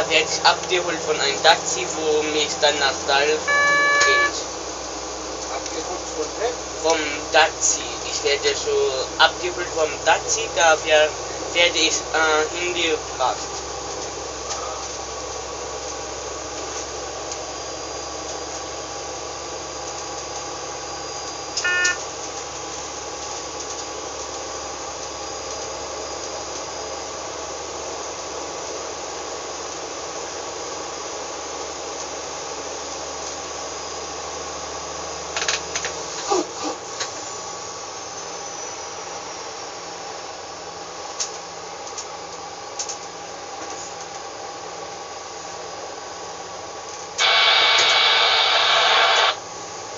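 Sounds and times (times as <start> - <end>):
short loud tone: 3.4 - 4.4, 21.6 - 22.0.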